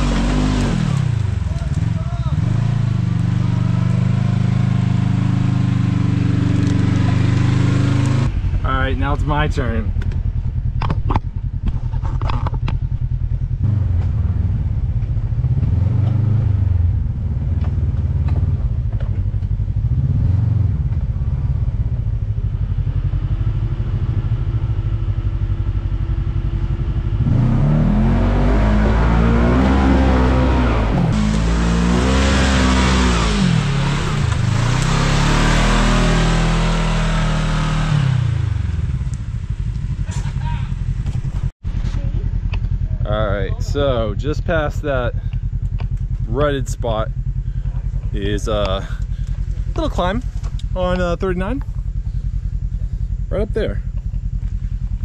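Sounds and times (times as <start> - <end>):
utility vehicle engine revving: 0.0 - 55.0.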